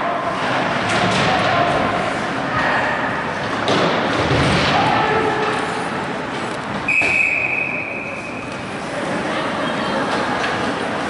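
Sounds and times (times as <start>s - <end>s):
spectators' voices: 0.0s - 11.0s
puck and players hitting boards: 0.4s - 2.7s, 3.4s - 5.7s.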